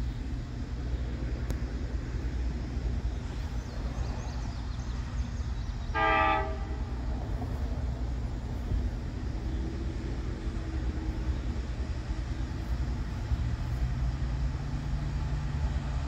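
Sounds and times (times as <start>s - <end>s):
steady low rumble: 0.0s - 16.0s
locomotive air horn blast: 5.9s - 7.1s.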